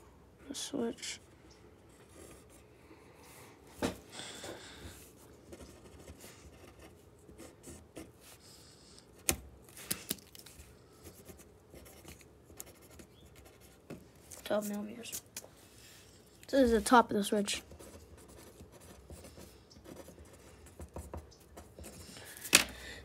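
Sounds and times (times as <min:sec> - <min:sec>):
pen scratching on paper: 0:05.5 - 0:08.1, 0:11.1 - 0:13.8, 0:17.6 - 0:22.2.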